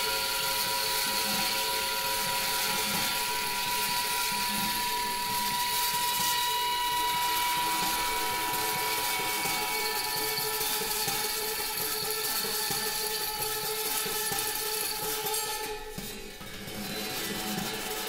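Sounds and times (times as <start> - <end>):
metallic grinding on turntable: 3.5 - 18.0
sustained ringing tones: 6.4 - 13.4.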